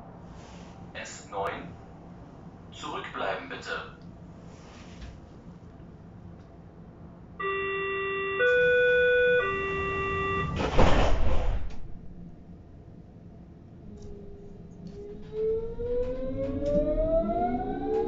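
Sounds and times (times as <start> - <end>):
train door warning tones: 7.4 - 12.2, 14.0 - 18.0
train doors shutting: 7.4 - 12.4, 13.9 - 18.0.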